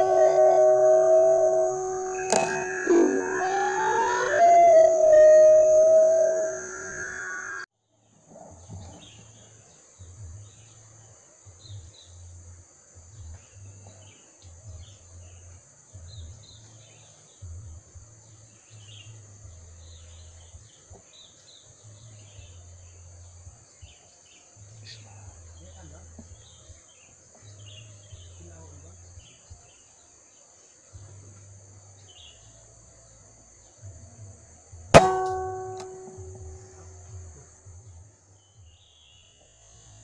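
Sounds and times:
high-pitched insect buzz: 0.0 - 7.7.

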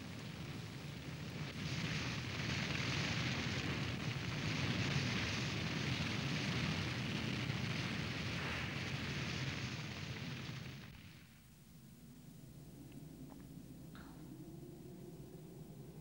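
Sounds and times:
fire burning in heavy rain: 0.0 - 11.5.

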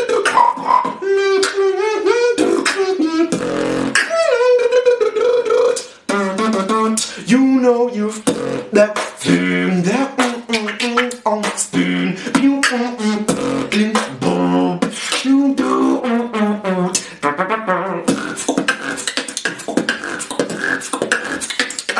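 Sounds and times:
beatboxing drum sounds: 0.0 - 21.9
hummed tune: 0.0 - 21.9.

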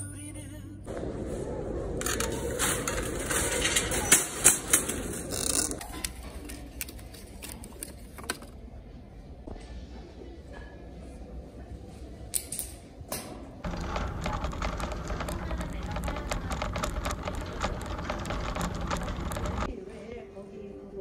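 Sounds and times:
shopping cart clanks: 2.0 - 5.8, 13.7 - 19.7
shopping cart rattling: 2.0 - 5.8, 13.6 - 19.7.

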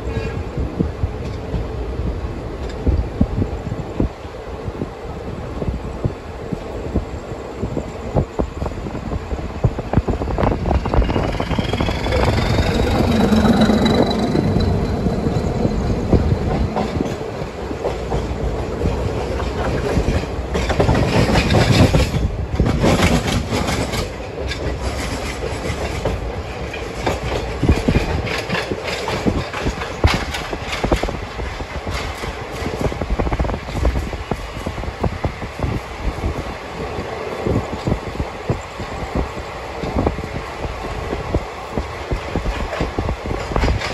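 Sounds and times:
train wheels rumbling: 0.0 - 43.9
wheels clattering over rail joints: 9.7 - 39.2, 41.4 - 43.9.

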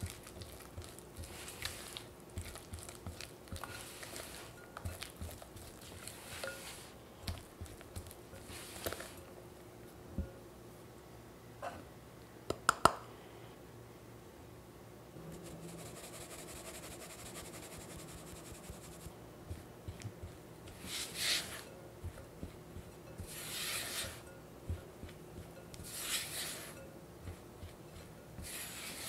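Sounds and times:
flour sifted through mesh sieve: 0.0 - 9.3, 15.3 - 29.0
spatula scraping glass bowl: 3.6 - 6.9, 20.7 - 22.3, 23.1 - 24.4, 25.4 - 29.0.

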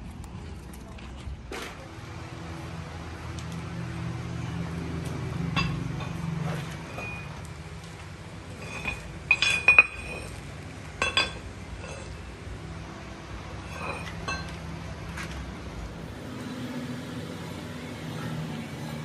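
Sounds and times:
metal parts clinking: 8.6 - 10.4, 11.0 - 12.2, 13.6 - 14.6.

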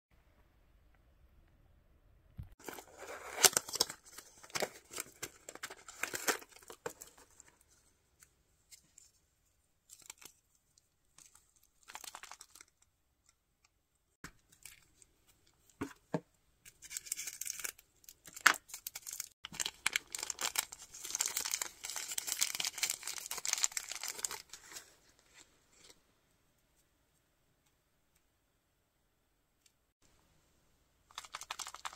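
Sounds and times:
cardboard and plastic tearing: 2.6 - 7.0.

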